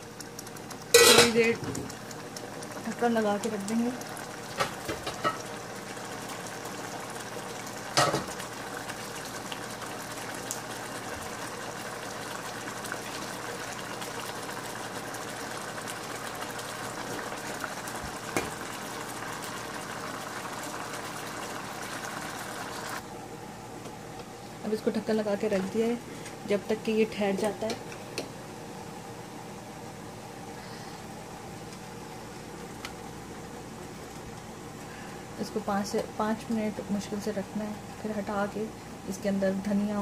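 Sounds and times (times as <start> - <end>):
curry bubbling in a pan: 0.0 - 23.0.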